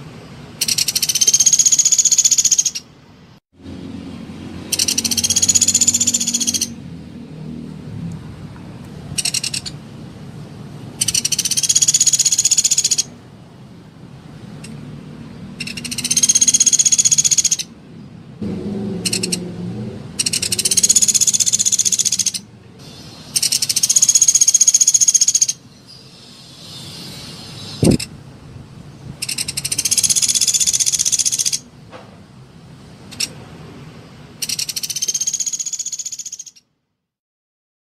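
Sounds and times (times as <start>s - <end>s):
woodpecker buzzy trills: 0.6s - 2.9s, 4.7s - 6.8s, 9.2s - 9.8s, 11.0s - 13.1s, 15.6s - 17.7s, 18.9s - 19.4s, 20.2s - 28.1s, 29.2s - 31.6s, 34.4s - 36.6s.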